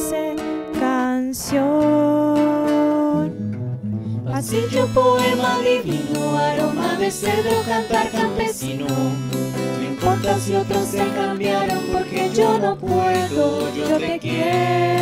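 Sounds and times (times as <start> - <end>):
woman singing: 0.0 - 3.4, 4.3 - 15.0
acoustic guitars: 0.0 - 15.0
several voices singing: 4.3 - 15.0.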